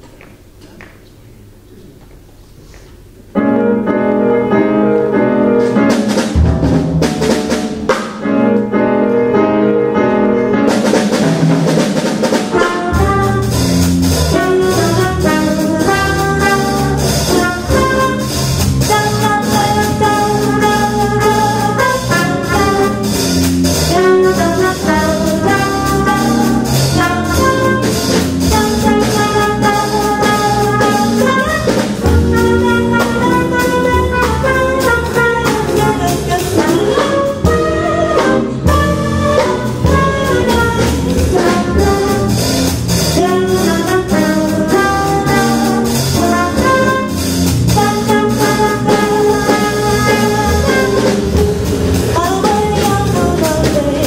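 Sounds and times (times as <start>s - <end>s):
jazz combo playing: 3.0s - 54.0s
trumpet: 8.3s - 54.0s
woman singing: 52.1s - 54.0s.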